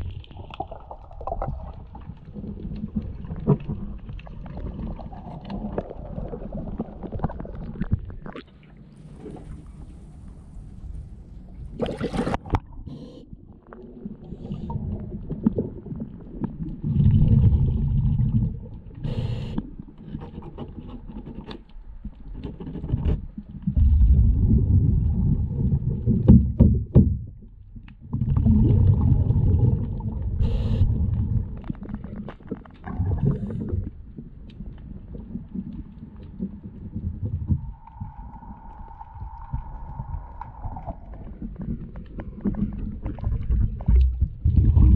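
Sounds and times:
underwater exhaled bubbles: 0.0 - 10.8, 11.6 - 20.0, 23.4 - 44.9
splash: 11.7 - 12.6.

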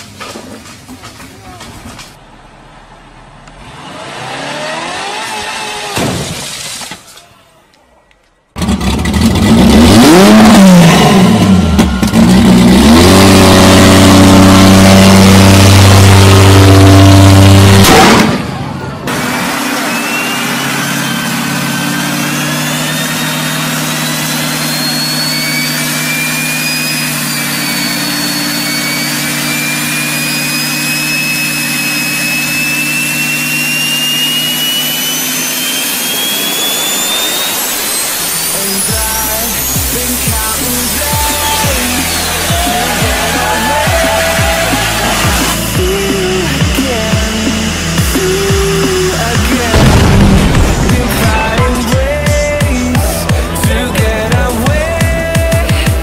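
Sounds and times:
engine drone: 0.0 - 6.4, 8.5 - 56.0
engine revving: 2.9 - 6.1, 8.6 - 56.0
thin whistle rising in pitch: 19.8 - 40.1, 40.9 - 45.2.

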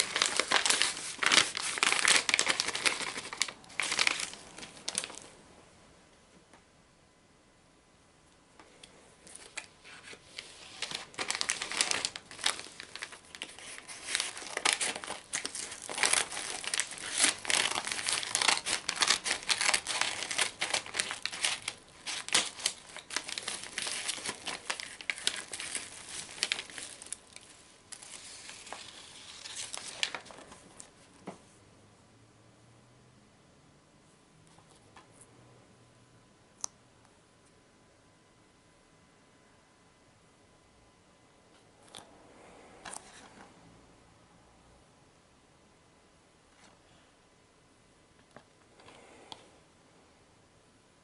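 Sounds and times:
envelope tearing: 0.0 - 5.2, 9.3 - 30.6
envelope crinkling and rustling: 0.0 - 5.4, 9.2 - 31.0.

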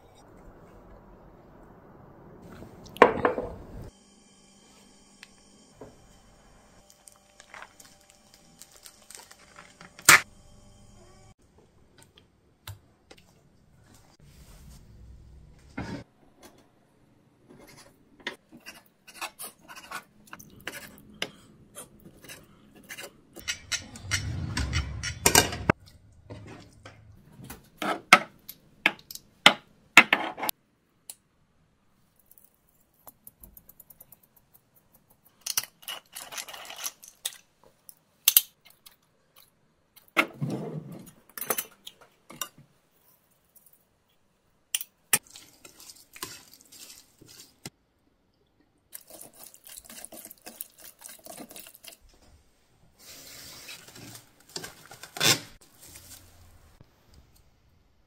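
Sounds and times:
jars and bottles handled on counter: 3.0 - 3.6, 44.7 - 47.7.

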